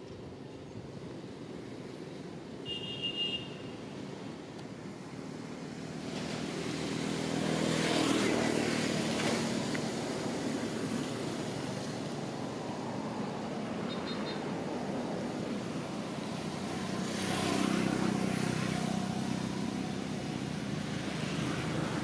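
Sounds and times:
motor engine passing by: 0:06.0 - 0:11.9, 0:16.5 - 0:22.0.

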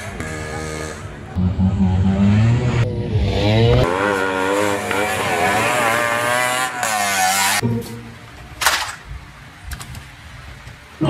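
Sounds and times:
auto-rickshaw engine revving: 0:00.0 - 0:07.6.

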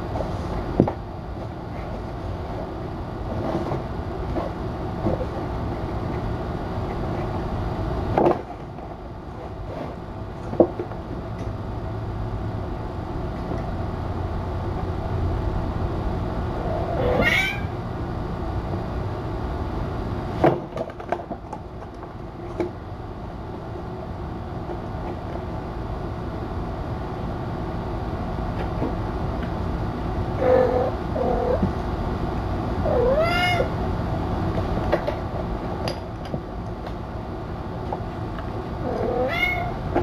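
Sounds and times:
steady low hum: 0:00.0 - 0:40.0
cat meowing: 0:16.9 - 0:17.8, 0:32.9 - 0:33.7, 0:38.9 - 0:39.8.

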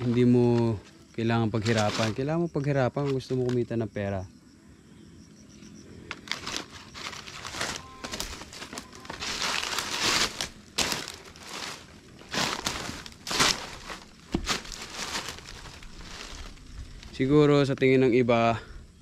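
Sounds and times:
rustling and crunching: 0:00.0 - 0:02.3, 0:06.1 - 0:17.8
crackling: 0:06.0 - 0:18.0.

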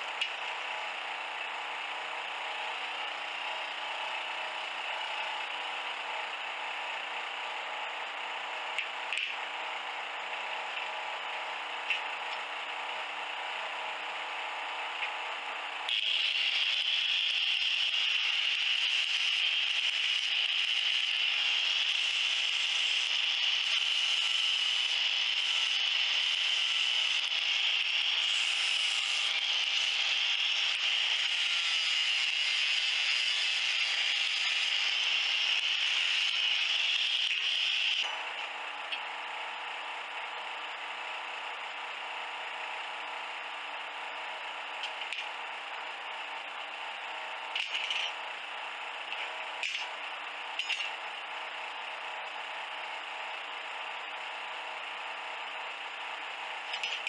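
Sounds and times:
angle grinder grinding metal: 0:15.8 - 0:39.0, 0:47.2 - 0:51.2, 0:56.5 - 0:57.0.

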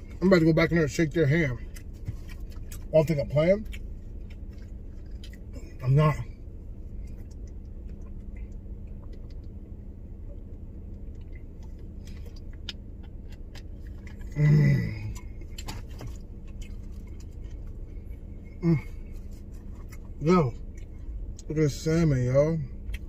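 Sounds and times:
steady low rumble: 0:00.0 - 0:23.0
sandwich being handled and eaten: 0:10.5 - 0:21.4.

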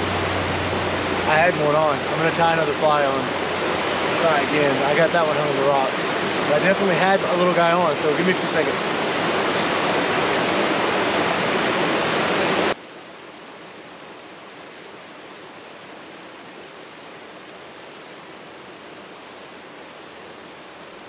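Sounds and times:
water tumbling over rocks: 0:00.1 - 0:12.8.

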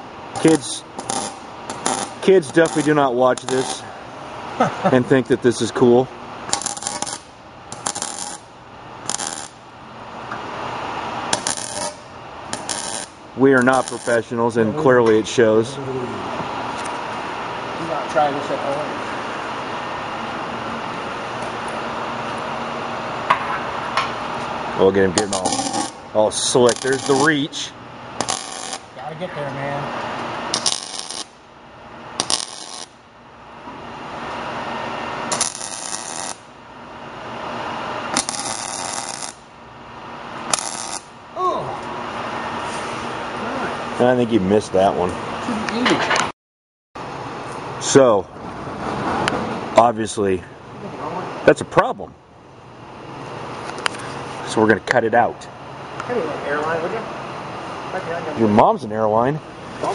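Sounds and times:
welding arc crackling: 0:00.0 - 0:03.9, 0:06.4 - 0:09.7, 0:11.1 - 0:14.6, 0:24.8 - 0:29.0, 0:30.4 - 0:33.1, 0:35.0 - 0:41.4.

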